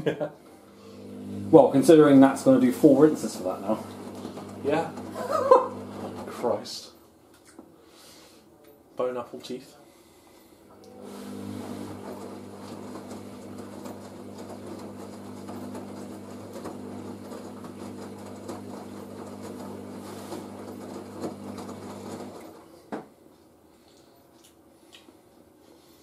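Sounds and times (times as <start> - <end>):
washing machine motor hum: 0.1 - 7.0, 10.8 - 22.9.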